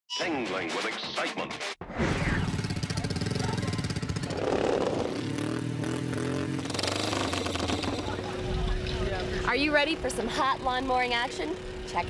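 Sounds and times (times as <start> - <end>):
lawn mower engine running: 2.5 - 12.0.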